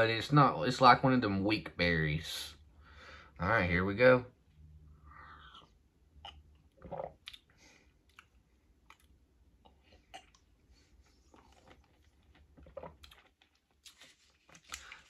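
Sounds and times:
man gulping and swallowing: 5.2s - 14.0s.

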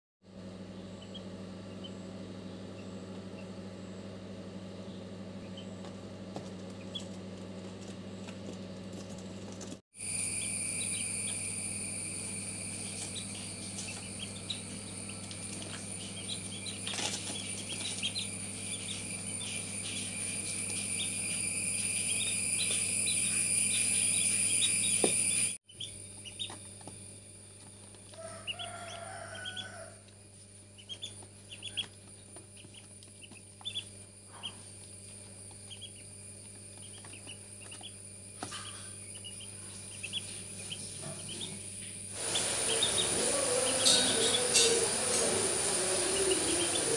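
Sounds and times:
steady background hum: 0.3s - 46.9s
ducklings peeping: 0.6s - 3.6s, 4.8s - 7.4s, 10.1s - 11.6s, 12.6s - 26.9s, 27.6s - 30.0s, 30.6s - 41.6s, 42.2s - 46.9s
high-pitched whine: 10.0s - 25.6s, 42.2s - 46.9s.

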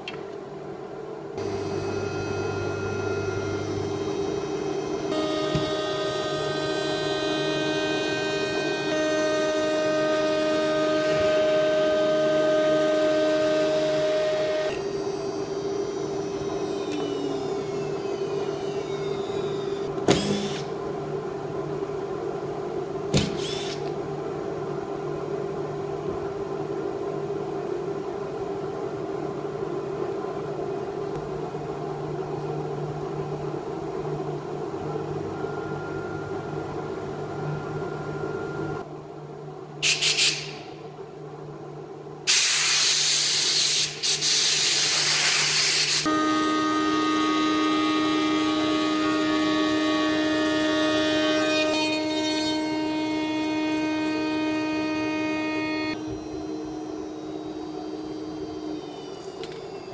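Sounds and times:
workshop machinery hum: 0.0s - 59.9s
spindle whine spinning down: 52.0s - 59.9s.

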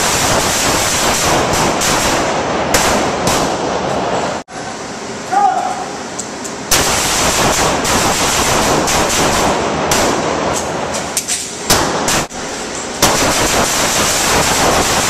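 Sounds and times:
rapid rifle fire: 0.0s - 3.8s, 6.7s - 10.6s, 11.7s - 12.4s, 13.0s - 15.0s.

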